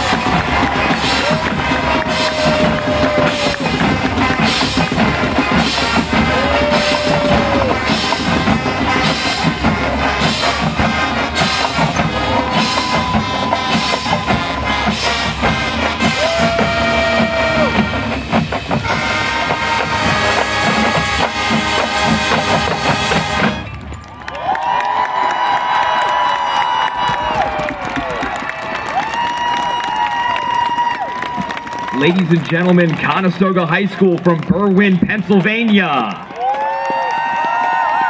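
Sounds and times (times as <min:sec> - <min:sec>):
brass holding long notes: 0:00.0 - 0:23.9
drumline beat: 0:00.0 - 0:24.0.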